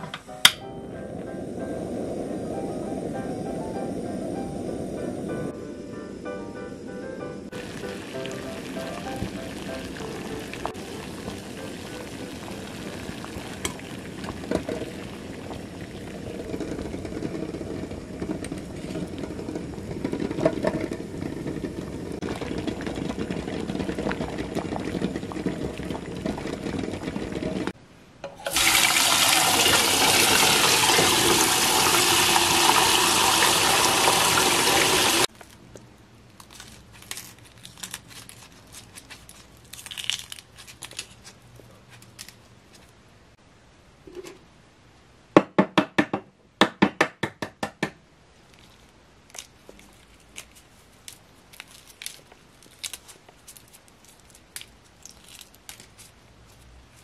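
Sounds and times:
tap water running into a pot: 7.5 - 27.7, 28.4 - 35.3
eggshell crackling: 7.5 - 27.8, 28.5 - 43.0, 48.4 - 57.0
water boiling in a pot: 7.5 - 35.4.

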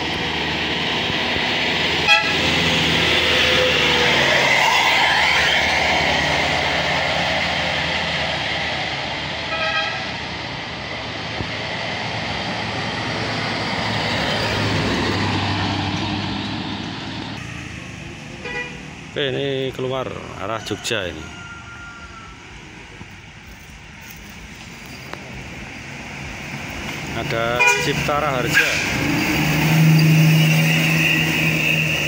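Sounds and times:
approaching vehicle rumble: 0.0 - 32.0
bus passing and driving away: 0.0 - 32.0
bus horn toots: 2.0 - 2.6, 9.5 - 10.2, 18.4 - 18.9, 27.6 - 29.0.

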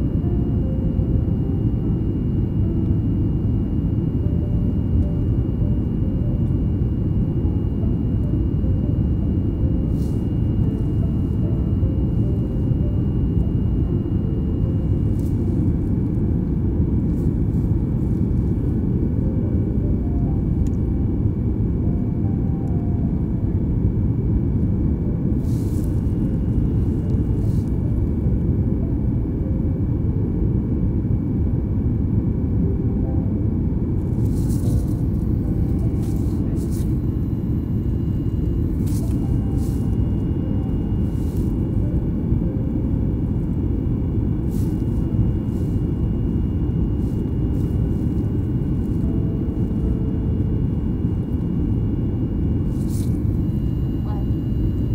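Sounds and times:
jet engine cabin rumble: 0.0 - 54.9.

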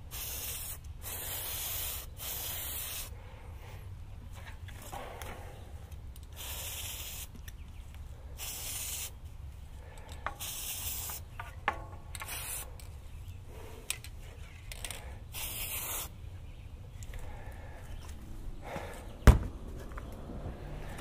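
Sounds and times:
aerosol spray hissing: 0.0 - 3.1, 6.4 - 7.3, 8.4 - 9.2, 10.4 - 11.3, 15.3 - 16.1.

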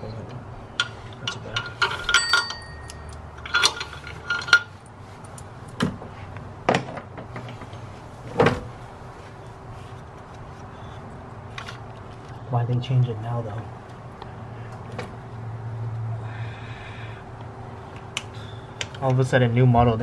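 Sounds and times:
metal tools clinking: 0.8 - 5.8.

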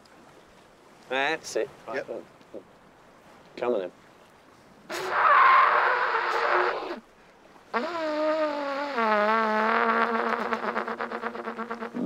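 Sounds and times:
trumpet blowing: 4.9 - 7.0, 7.7 - 12.0.

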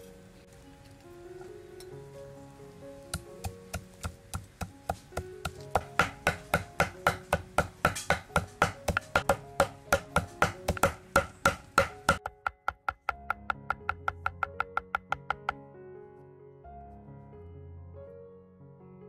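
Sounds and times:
knife chopping on wooden board: 3.4 - 15.6.

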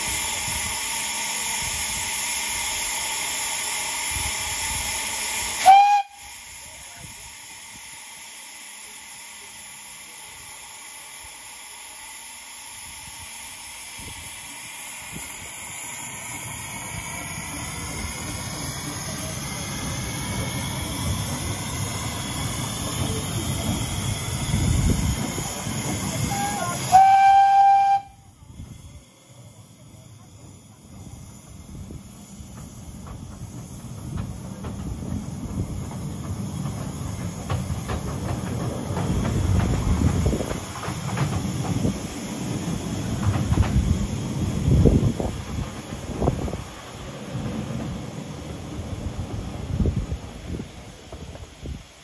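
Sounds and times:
steam locomotive hissing: 0.0 - 52.0
train rumbling past: 0.0 - 52.0
train whistle blast: 5.6 - 6.5, 26.3 - 28.4.

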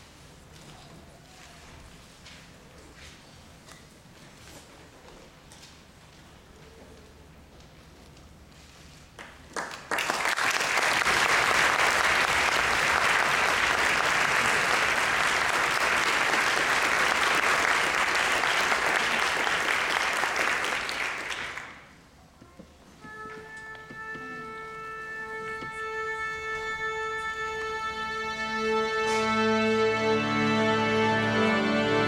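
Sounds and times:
audience applauding: 9.2 - 21.9.

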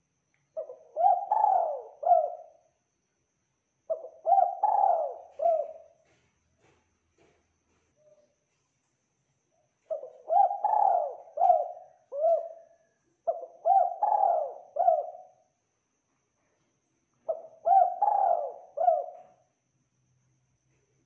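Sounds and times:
dove cooing: 0.6 - 2.6, 3.9 - 6.1, 9.8 - 15.4, 17.3 - 19.4.

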